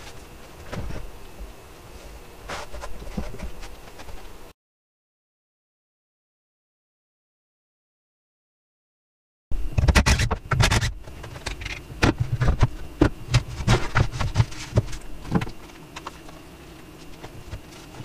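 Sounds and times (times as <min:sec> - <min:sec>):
quiet background hum: 0:00.0 - 0:04.6, 0:09.5 - 0:18.0.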